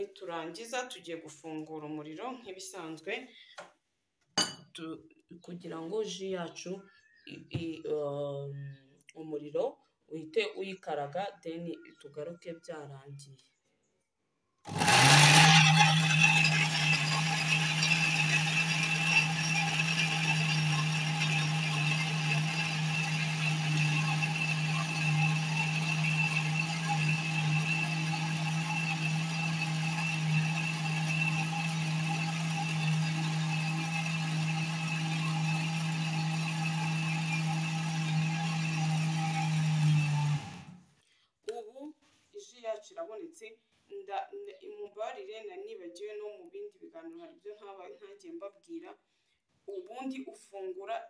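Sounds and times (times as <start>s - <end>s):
blender motor running: 14.7s - 40.8s.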